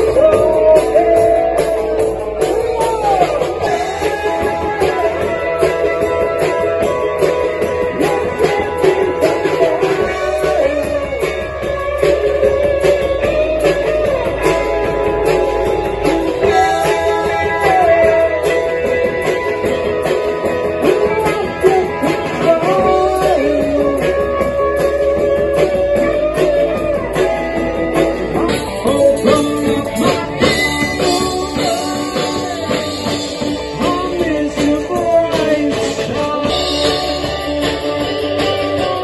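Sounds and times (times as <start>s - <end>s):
electric guitar bending notes: 0.0s - 39.0s
live rock band playing: 0.0s - 39.0s.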